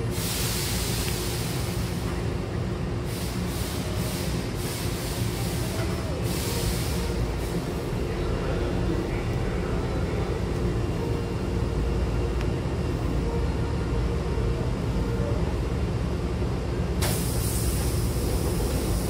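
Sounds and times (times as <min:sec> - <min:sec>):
train equipment hum and rumble: 0:00.0 - 0:19.0
air hiss: 0:00.1 - 0:02.0, 0:03.1 - 0:07.7, 0:17.0 - 0:19.0.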